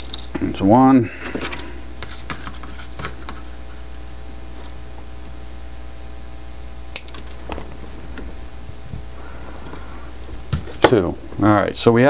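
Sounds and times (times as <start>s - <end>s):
low hum: 0.0s - 12.0s
wire clicking and tapping: 6.9s - 11.0s.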